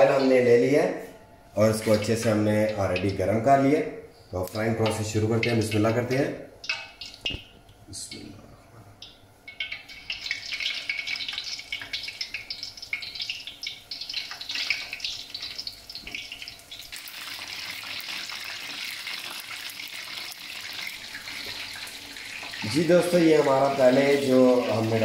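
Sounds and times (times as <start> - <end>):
chicken wings sizzling in oil: 9.5 - 25.0.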